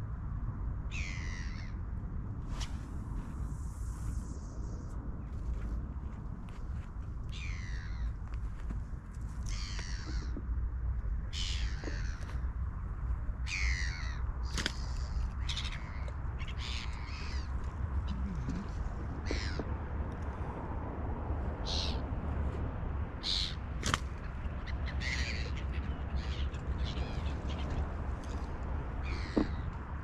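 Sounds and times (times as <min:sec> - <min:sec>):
birds calling harshly: 0:00.9 - 0:01.8, 0:07.3 - 0:08.1, 0:09.4 - 0:10.4, 0:11.3 - 0:12.5, 0:13.4 - 0:19.9, 0:21.6 - 0:22.1, 0:23.2 - 0:29.8.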